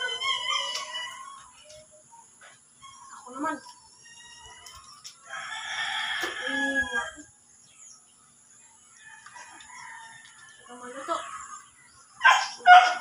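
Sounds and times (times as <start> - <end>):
rooster crowing: 4.1 - 7.3, 9.0 - 11.6.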